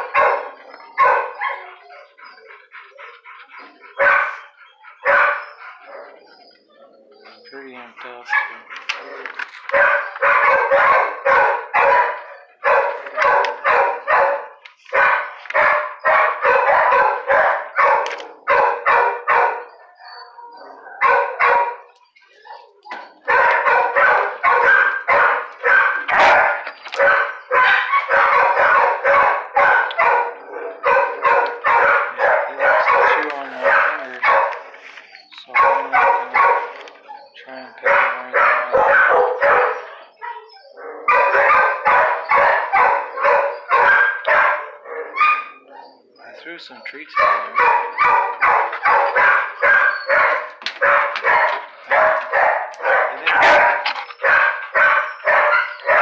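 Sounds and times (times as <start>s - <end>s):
dog barking rapidly: 0.0s - 1.6s, 4.0s - 4.4s, 5.0s - 5.5s, 8.3s - 8.6s, 9.7s - 19.7s, 21.0s - 21.9s, 23.2s - 34.6s, 35.5s - 36.8s, 37.8s - 39.9s, 41.0s - 45.6s, 47.1s - 56.0s.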